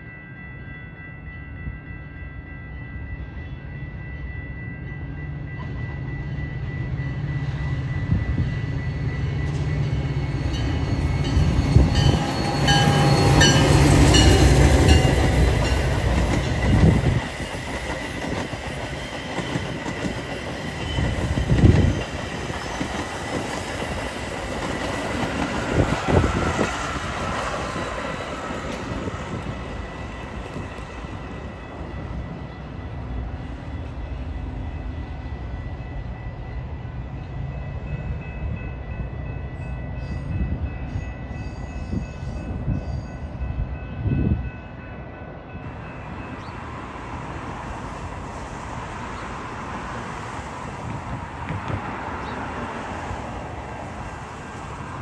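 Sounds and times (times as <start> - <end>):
diesel locomotive passing: 0.0 - 55.0
train wheel rumble: 1.2 - 55.0
wheels clacking over rail joints: 11.6 - 30.9.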